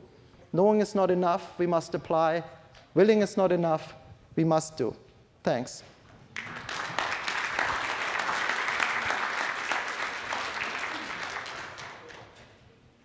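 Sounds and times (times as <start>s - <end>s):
audience applauding: 6.3s - 12.5s.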